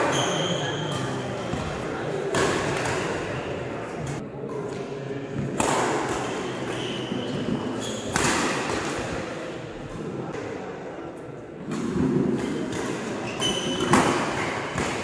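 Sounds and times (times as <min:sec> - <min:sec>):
racket hitting shuttlecock: 0:00.9 - 0:03.3, 0:05.4 - 0:09.2, 0:11.7 - 0:15.0.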